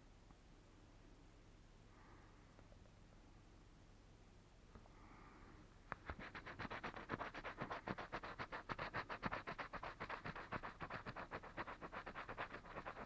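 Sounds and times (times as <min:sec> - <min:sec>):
coin scratching a scratch card: 0:06.0 - 0:13.0.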